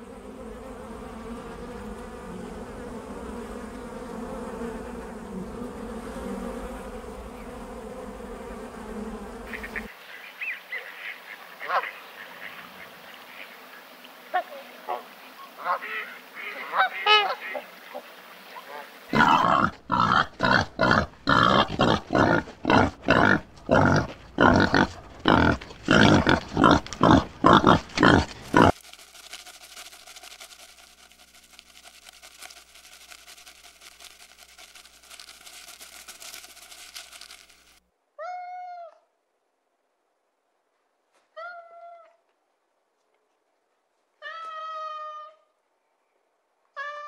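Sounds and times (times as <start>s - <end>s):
animal's loud harsh calls: 18.7s - 28.8s.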